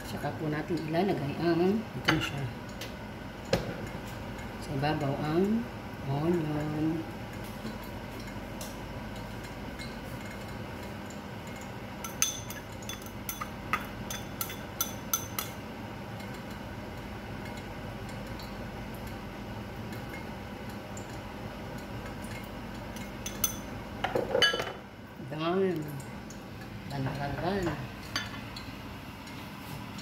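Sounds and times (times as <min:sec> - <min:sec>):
knife clinking against bowls: 0:12.0 - 0:15.6, 0:23.0 - 0:24.8.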